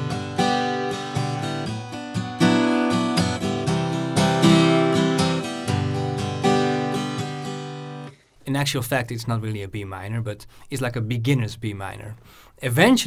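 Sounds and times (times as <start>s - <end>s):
acoustic guitar strumming: 0.0s - 8.4s.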